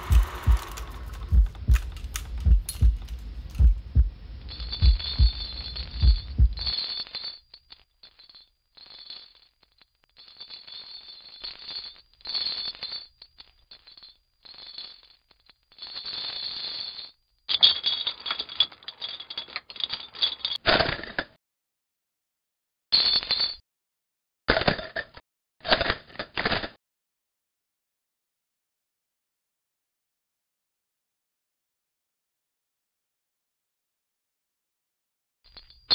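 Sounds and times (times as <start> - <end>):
metal chain rattling on hard floor: 0.0 - 21.1, 23.0 - 23.6, 35.5 - 35.9.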